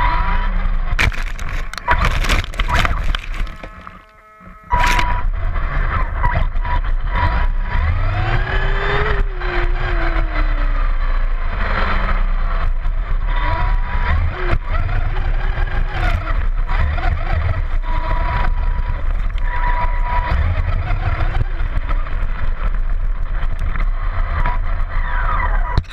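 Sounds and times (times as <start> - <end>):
chassis and tyres rattling: 0.9 - 7.7
electric motor whine: 1.0 - 6.2.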